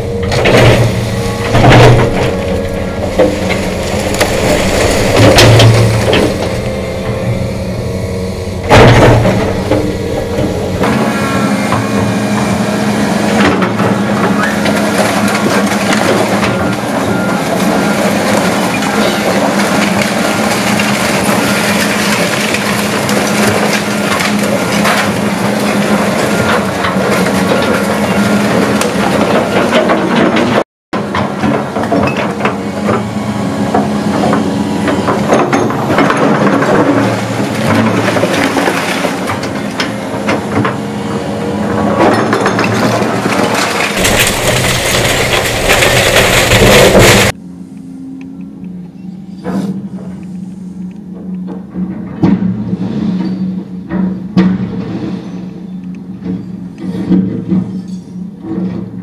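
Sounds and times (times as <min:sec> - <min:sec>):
excavator diesel engine running: 0:00.0 - 0:59.0
bricks and debris crashing: 0:00.2 - 0:06.6, 0:13.5 - 0:32.2, 0:35.3 - 0:39.9, 0:42.0 - 0:47.4.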